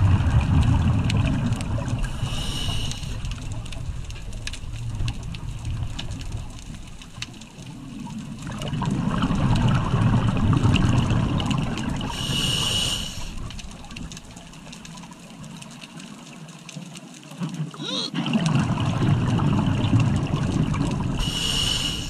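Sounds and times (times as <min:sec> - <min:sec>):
gurgling rush of exhaled bubbles: 0:00.0 - 0:04.1, 0:07.8 - 0:14.4, 0:17.6 - 0:22.0
hissing regulator inhalation: 0:02.2 - 0:03.2, 0:12.2 - 0:13.4, 0:21.2 - 0:22.0
faint clicks: 0:12.2 - 0:17.6.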